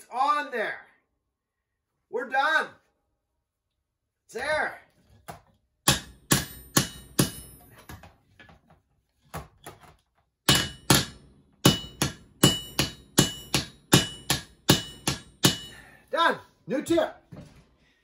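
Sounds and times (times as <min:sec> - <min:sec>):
hammer striking metal: 0:05.8 - 0:08.0, 0:10.5 - 0:16.0.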